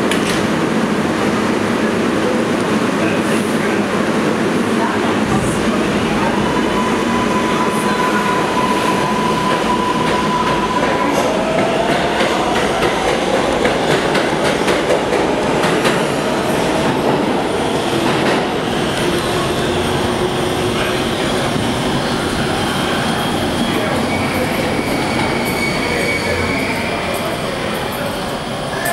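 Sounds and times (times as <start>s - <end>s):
subway train rumbling: 0.0s - 28.9s.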